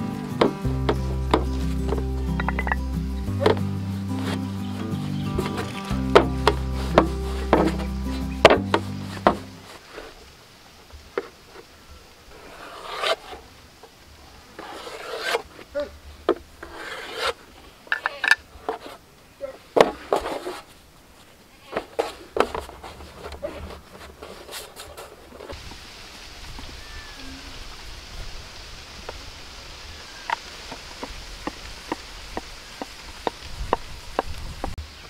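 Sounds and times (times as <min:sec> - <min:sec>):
hands rubbing dough: 0:03.4 - 0:10.1
knife scraping dough on metal: 0:12.5 - 0:13.4, 0:14.6 - 0:15.4, 0:16.6 - 0:19.0.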